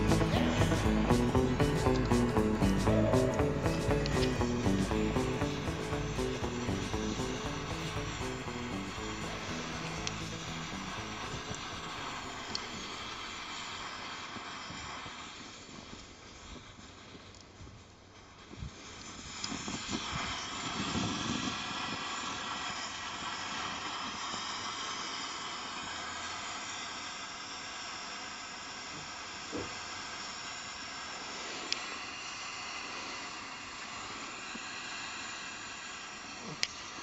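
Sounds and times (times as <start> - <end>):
stove burner hissing: 0.0 - 37.0.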